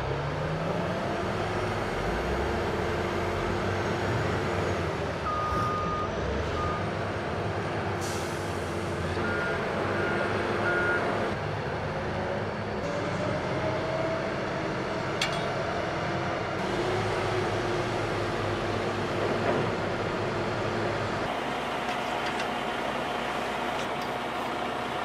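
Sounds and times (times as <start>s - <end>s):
diesel machinery running: 0.0s - 25.0s.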